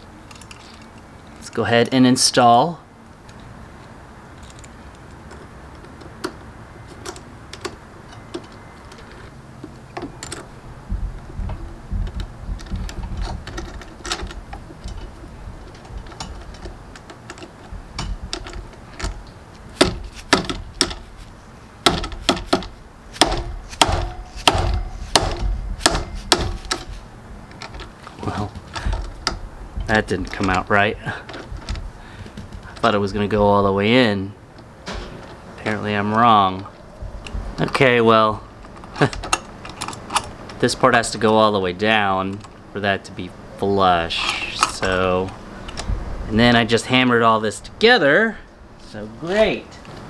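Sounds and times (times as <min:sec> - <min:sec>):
parts clicking: 0:00.0 - 0:02.0, 0:03.1 - 0:33.9, 0:34.5 - 0:42.7, 0:44.0 - 0:46.0
low steady rumble: 0:02.3 - 0:50.0
mallet knocking: 0:21.8 - 0:26.9.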